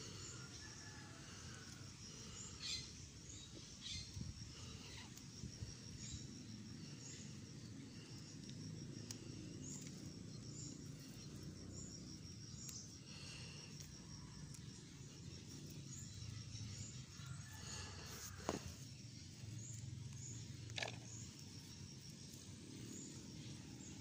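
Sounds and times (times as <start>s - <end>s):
faint chirps: 0.0s - 24.0s
high insect trill: 0.0s - 24.0s.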